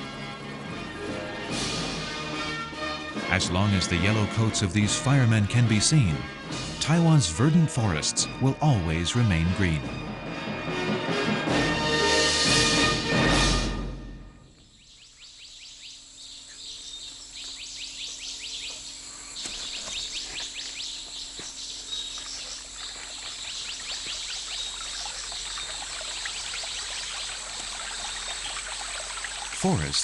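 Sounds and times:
insects and birds chirping: 14.4 - 30.0
stream water rushing: 22.5 - 30.0.

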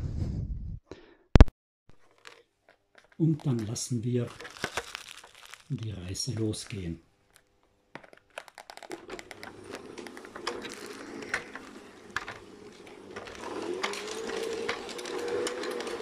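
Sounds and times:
toy train motor hum: 9.4 - 16.0
toy train wheels clicking on track: 9.4 - 16.0.

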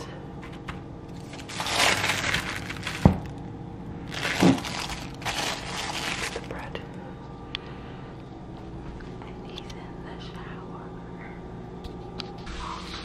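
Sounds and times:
plastic bag crinkling: 1.1 - 3.4, 4.0 - 6.8.

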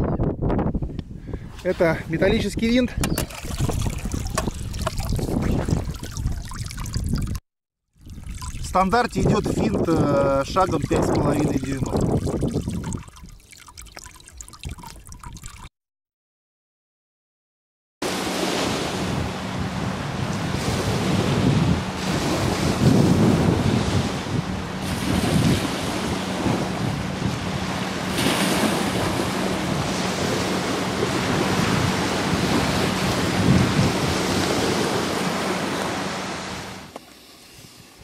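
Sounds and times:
wind buffeting microphone: 0.0 - 7.4, 8.1 - 13.5, 18.8 - 36.5
choppy waves: 3.1 - 7.4, 8.0 - 15.7, 18.0 - 38.0
outboard motor droning: 18.0 - 37.4.

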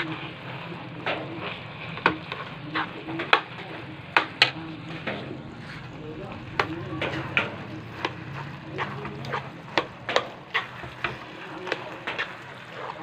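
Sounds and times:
wet shuffle of stirred rice: 0.0 - 13.0.

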